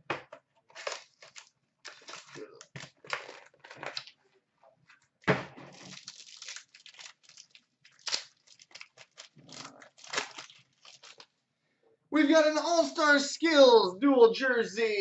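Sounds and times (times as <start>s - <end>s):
foil wrapper crinkling and tearing: 0.7s - 4.2s, 5.7s - 11.3s.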